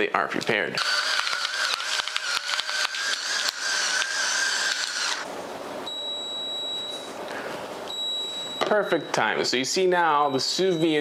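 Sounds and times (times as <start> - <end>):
electric pepper grinder whirring: 0.8 - 5.3
pressure cooker high beep: 5.9 - 7.0, 7.9 - 8.8.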